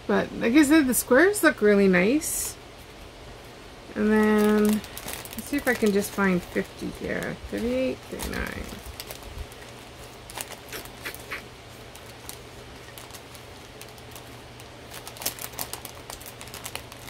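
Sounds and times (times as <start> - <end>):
plastic bags clicking and crinkling: 4.0 - 17.0.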